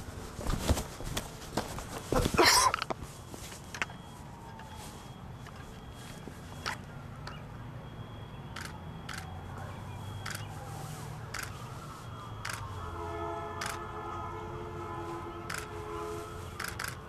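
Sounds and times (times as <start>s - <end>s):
sharp shutter-like clicks: 8.5s - 9.3s, 10.2s - 10.5s, 11.3s - 11.6s, 13.6s - 13.8s, 15.5s - 15.7s, 16.6s - 17.0s
camera handling noise: 11.3s - 11.6s, 13.6s - 13.8s, 15.5s - 15.7s, 16.6s - 17.0s.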